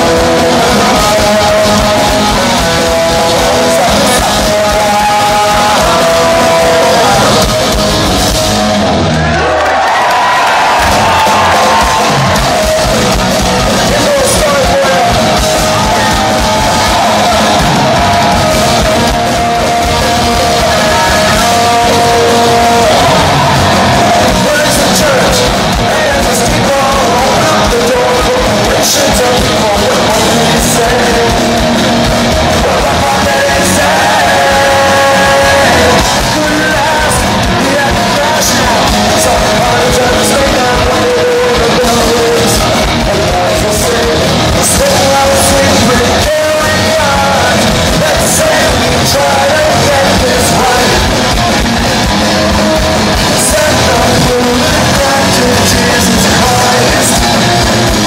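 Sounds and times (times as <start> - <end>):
person singing: 0.0 - 8.1, 10.8 - 58.0
drums with crashing cymbals: 0.0 - 9.2, 10.6 - 58.0
distorted electric guitars: 0.0 - 58.0.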